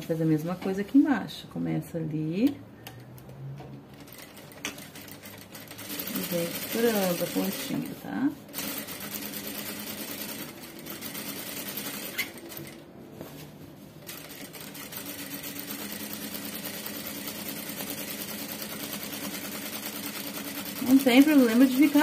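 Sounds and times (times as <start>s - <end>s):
sewing machine stitching: 4.0s - 12.8s, 14.1s - 22.0s.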